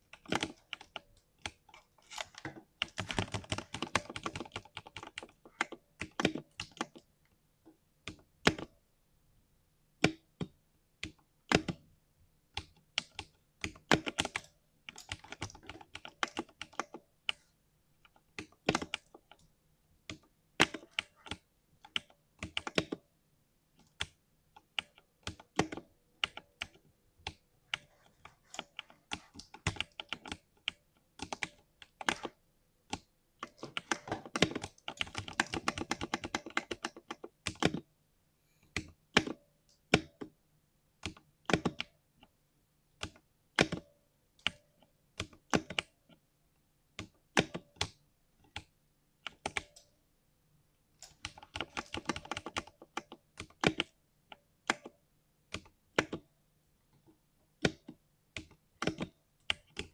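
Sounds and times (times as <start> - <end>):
mechanical keyboard clicking: 0.1 - 7.0, 28.5 - 37.8, 41.0 - 41.9, 47.0 - 49.9, 51.0 - 54.0, 57.6 - 59.9
computer mouse clicking: 0.1 - 7.4, 12.6 - 19.5, 20.1 - 23.0, 23.8 - 37.9, 38.7 - 40.4, 41.0 - 42.3, 43.0 - 46.2, 47.0 - 50.0, 51.0 - 56.3, 57.0 - 59.9.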